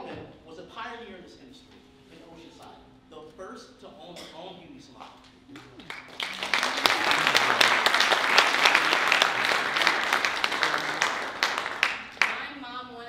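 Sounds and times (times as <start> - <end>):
audience applauding: 5.6 - 12.6.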